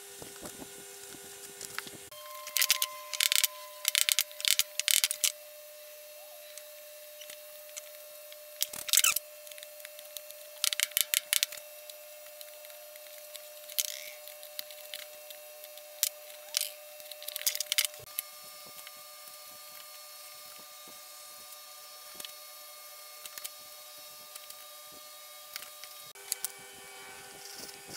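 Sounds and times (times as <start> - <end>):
faint steady hum: 0.0 - 27.9.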